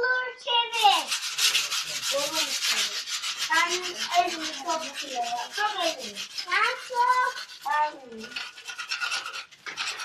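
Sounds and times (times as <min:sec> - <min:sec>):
child talking: 0:00.0 - 0:01.2, 0:02.1 - 0:08.5
sandpaper rubbing on metal: 0:00.7 - 0:10.0.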